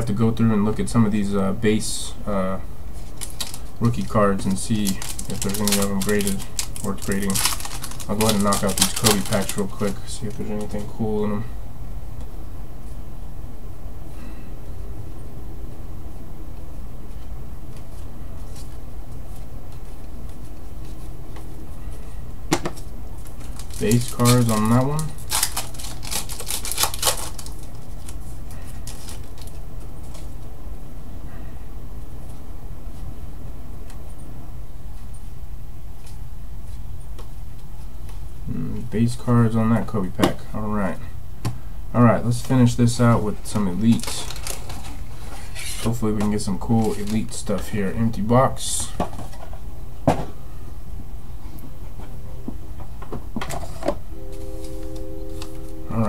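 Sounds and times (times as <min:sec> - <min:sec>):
steady low hum: 0:00.0 - 0:56.0
trading cards flipping: 0:03.0 - 0:04.1, 0:04.7 - 0:10.9, 0:22.7 - 0:30.3, 0:43.5 - 0:47.3.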